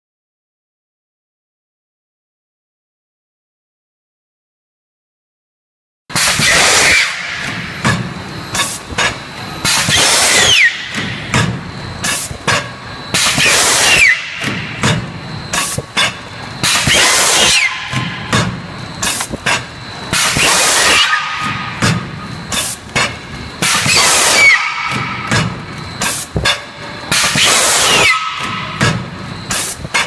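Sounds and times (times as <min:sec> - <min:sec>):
compressed air hiss: 0:06.2 - 0:07.1, 0:08.5 - 0:10.7, 0:12.0 - 0:14.5, 0:15.5 - 0:15.9, 0:16.6 - 0:17.7, 0:19.0 - 0:21.1, 0:22.5 - 0:22.9, 0:23.6 - 0:24.6, 0:26.0 - 0:26.4, 0:27.1 - 0:28.1, 0:29.5 - 0:29.9
machine clicks and knocks: 0:07.4 - 0:10.0, 0:10.9 - 0:13.4, 0:14.4 - 0:16.9, 0:17.9 - 0:20.4, 0:24.9 - 0:27.4
falling whistle: 0:09.9 - 0:10.9, 0:13.3 - 0:14.4, 0:16.7 - 0:18.3, 0:23.6 - 0:25.3, 0:27.3 - 0:28.8.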